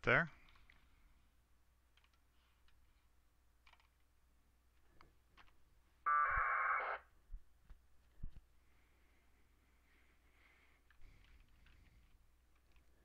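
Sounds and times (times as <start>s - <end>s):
radio data tones warbling buzz: 6.1s - 7.1s.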